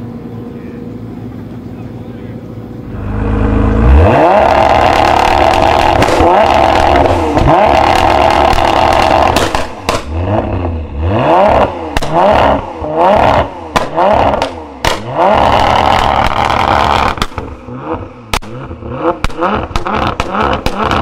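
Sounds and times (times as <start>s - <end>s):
car engine revving: 2.5s - 21.0s
exhaust pops: 4.4s - 10.7s, 11.9s - 12.2s, 13.2s - 17.5s, 18.3s - 21.0s.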